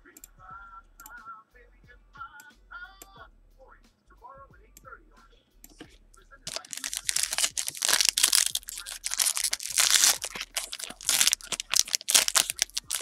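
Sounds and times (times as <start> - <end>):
foil wrapper tearing and crinkling: 6.5 - 13.0.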